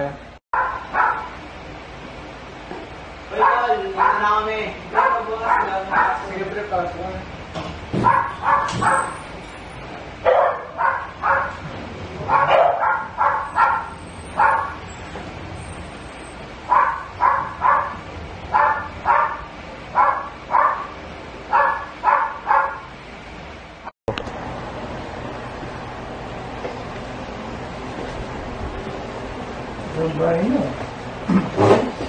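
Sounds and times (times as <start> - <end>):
dog barking: 0.6 - 1.4, 3.4 - 6.3, 8.0 - 9.2, 10.2 - 11.6, 12.2 - 14.8, 16.7 - 22.9.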